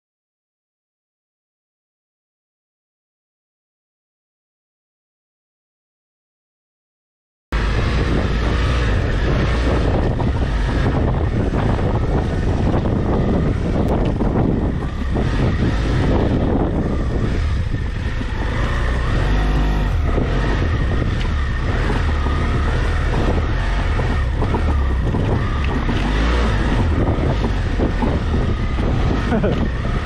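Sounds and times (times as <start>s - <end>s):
motorcycle engine running: 7.6s - 30.0s
wind buffeting microphone: 7.6s - 30.0s.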